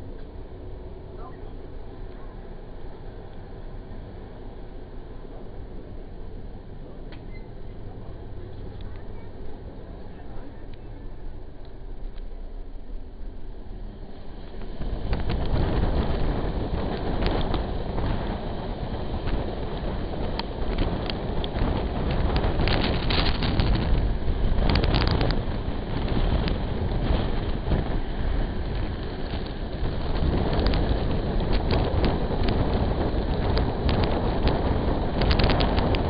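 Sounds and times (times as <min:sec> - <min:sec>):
train rumbling on rails: 0:00.0 - 0:36.0
wind buffeting microphone: 0:13.4 - 0:36.0.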